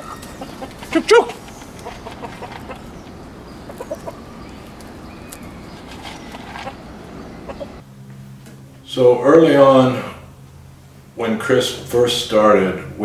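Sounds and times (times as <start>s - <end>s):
chickens clucking: 0.0s - 7.8s
outdoor background noise: 0.0s - 13.0s.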